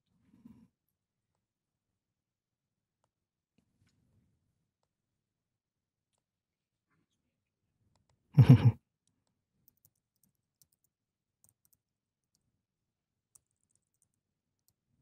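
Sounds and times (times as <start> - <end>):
laptop keyboard typing: 9.6 - 12.5, 13.2 - 15.0.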